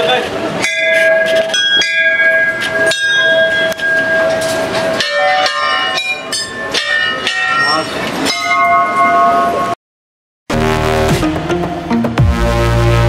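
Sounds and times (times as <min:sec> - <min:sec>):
temple bells ringing: 0:00.5 - 0:09.8.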